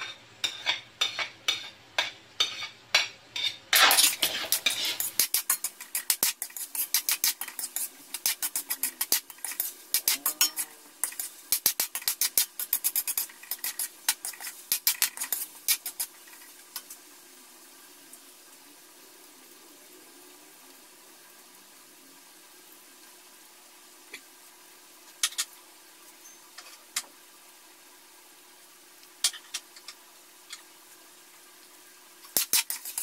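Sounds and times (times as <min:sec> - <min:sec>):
metal spatula scraping a wok: 0:00.0 - 0:17.0, 0:32.3 - 0:33.0
onions sizzling in a pan: 0:00.0 - 0:33.0.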